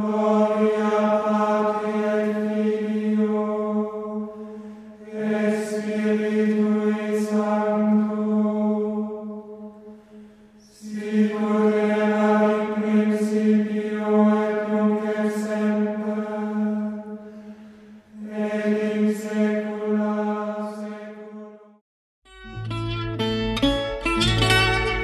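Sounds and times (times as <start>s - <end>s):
slow vocal chanting: 0.0s - 21.8s.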